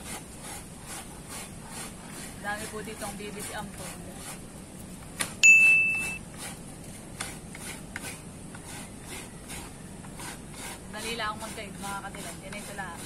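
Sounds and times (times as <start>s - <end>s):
scraping strokes: 0.0s - 4.5s, 5.2s - 13.0s
high-pitched ding: 5.4s - 6.2s.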